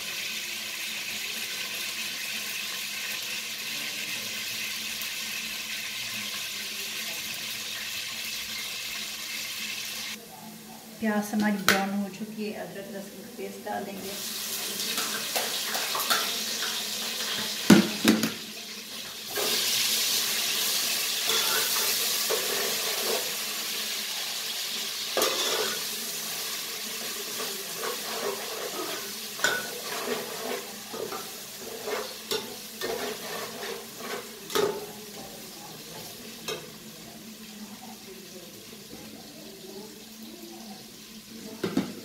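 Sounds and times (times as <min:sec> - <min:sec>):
food sizzling in oil: 0:00.0 - 0:42.0
spoon scraping metal pot: 0:21.2 - 0:23.3, 0:25.2 - 0:25.8, 0:27.3 - 0:34.9.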